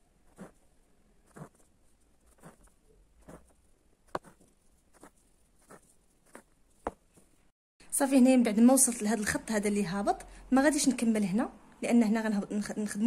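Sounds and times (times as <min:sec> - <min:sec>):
needle pushed through fabric: 0:00.2 - 0:07.4
thread pulled through fabric: 0:00.2 - 0:07.5.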